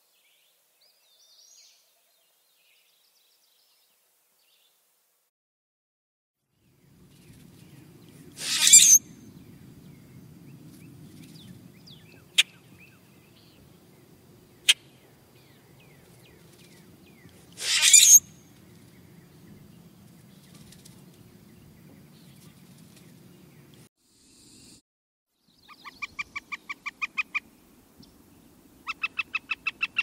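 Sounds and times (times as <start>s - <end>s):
grackle creaky song: 8.4s - 9.0s, 17.6s - 18.3s
low steady rumble: 9.0s - 17.4s
faint bird chirps: 24.2s - 28.2s.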